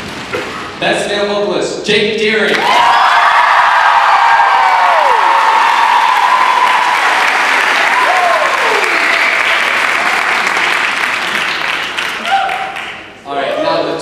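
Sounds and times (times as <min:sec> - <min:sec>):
crowd applauding and cheering: 0:02.5 - 0:13.6
falling whoops: 0:02.6 - 0:07.2, 0:07.8 - 0:09.1, 0:12.2 - 0:12.9.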